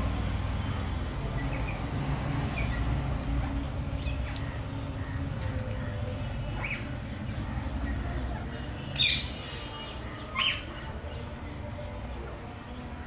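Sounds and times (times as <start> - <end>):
parakeets squawking: 9.0 - 9.5, 10.3 - 10.8.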